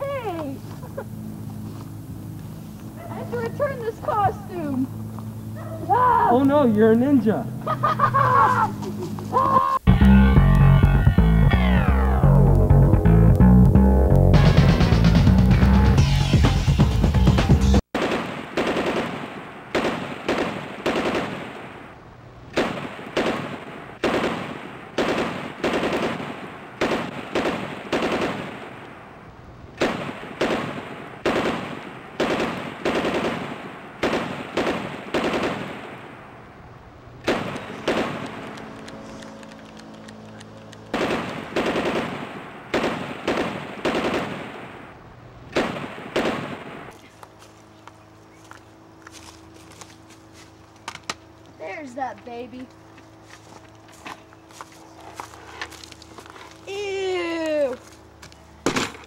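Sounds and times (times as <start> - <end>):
sharp ringing bangs: 37.2 - 46.9.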